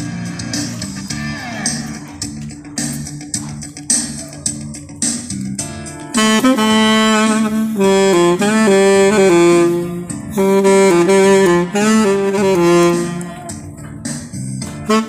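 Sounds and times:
guitar and bass backing: 0:00.0 - 0:15.0
saxophone melody: 0:05.7 - 0:14.0, 0:14.6 - 0:15.0.

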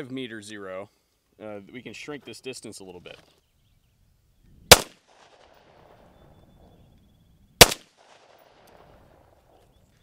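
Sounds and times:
rifle shots with echo: 0:04.7 - 0:06.2, 0:07.6 - 0:09.4.

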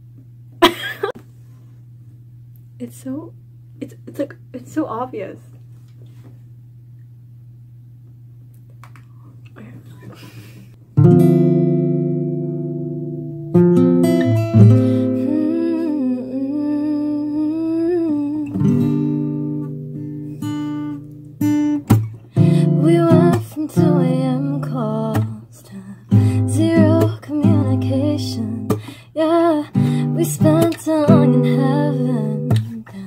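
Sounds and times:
acoustic guitar strummed chords: 0:10.9 - 0:16.4, 0:18.4 - 0:25.4, 0:26.1 - 0:33.0
woman singing: 0:14.8 - 0:18.7, 0:22.4 - 0:33.0.

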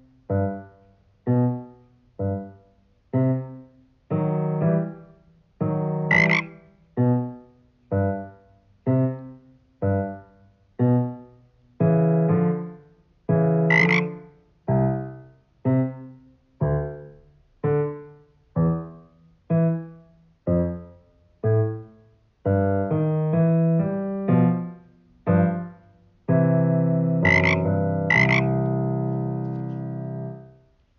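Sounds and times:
slow piano duet: 0:00.0 - 0:30.9
frog-like croak: 0:05.9 - 0:06.7, 0:13.6 - 0:14.2, 0:27.2 - 0:28.8.

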